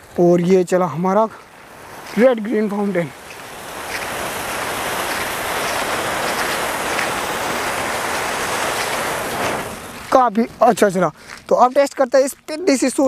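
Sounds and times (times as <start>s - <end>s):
faint firework crackles: 1.3s - 12.6s
firework fountain hissing: 1.4s - 10.2s.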